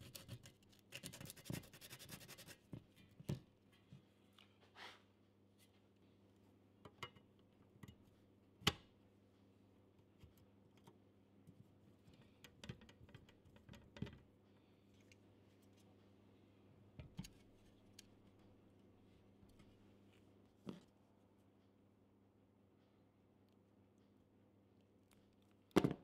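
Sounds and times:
faint clicks and taps of small parts: 10.2 - 14.3.

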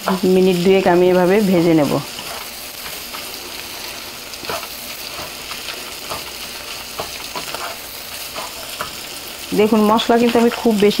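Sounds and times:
fish roe sizzling in oil: 0.0 - 11.0
wooden spatula scraping pan: 2.0 - 9.0.

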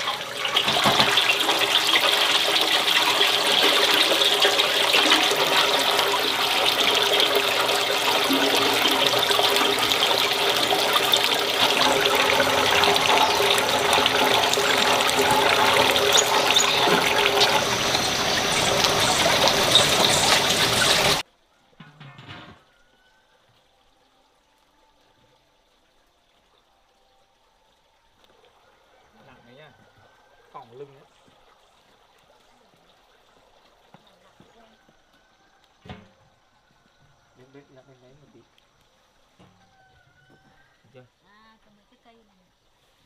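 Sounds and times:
water running into a pot: 0.0 - 21.2.

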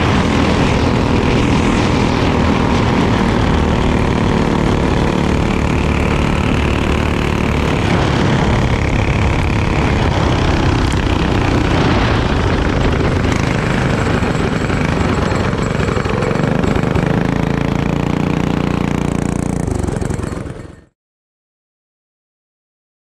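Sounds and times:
rushing air: 0.0 - 15.2
kart engine running: 0.0 - 21.0.

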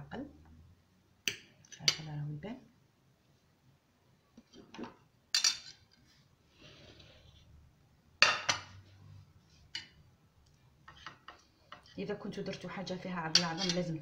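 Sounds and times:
cutlery clinking on a plate: 5.4 - 5.8, 13.3 - 13.9.

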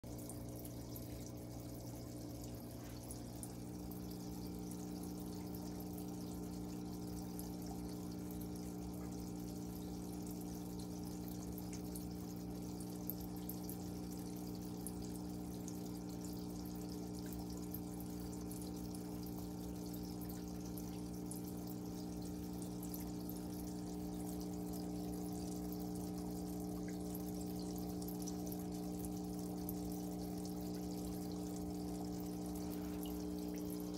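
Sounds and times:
aquarium filters bubbling: 0.0 - 33.9
air pump hum: 0.4 - 5.0, 28.3 - 33.9.

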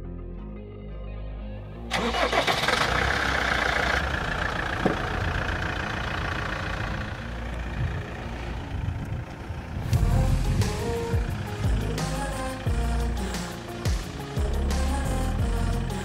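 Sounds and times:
motorhome engine rumbling: 1.8 - 16.0.

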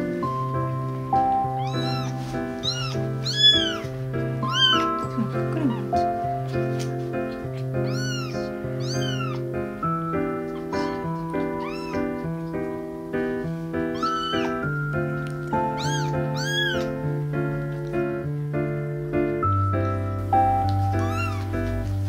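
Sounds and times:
background music: 0.0 - 22.0
kitten mewing: 1.5 - 9.5, 10.3 - 12.6, 13.9 - 17.1, 20.9 - 21.6.

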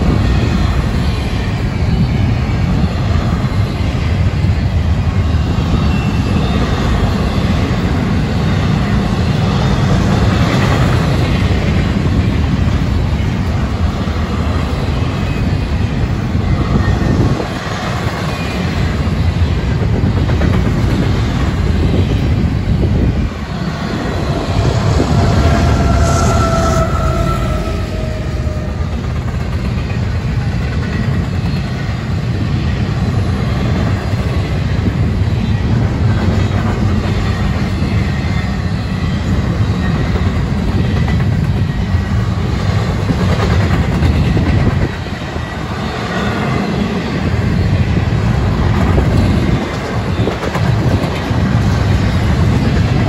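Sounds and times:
freight train rumbling and rattling: 0.0 - 53.0.

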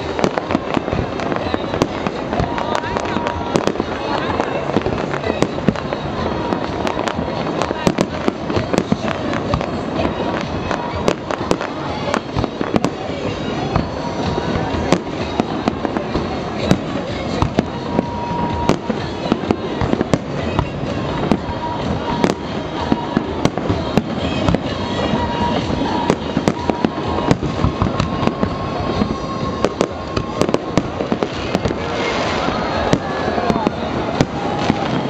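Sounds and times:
fireworks bangs and crackles: 0.0 - 35.0
fireworks display rumble: 0.0 - 35.0.

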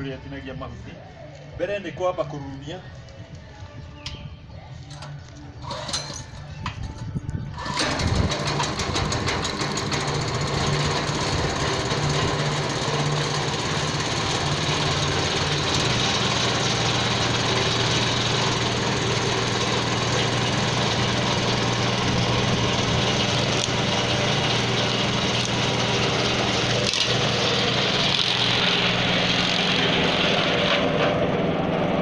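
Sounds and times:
small engine running: 7.5 - 32.0.

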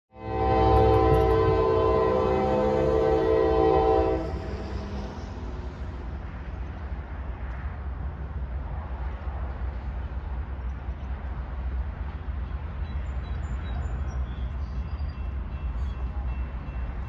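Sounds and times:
diesel locomotive engines rumbling: 0.1 - 17.0.

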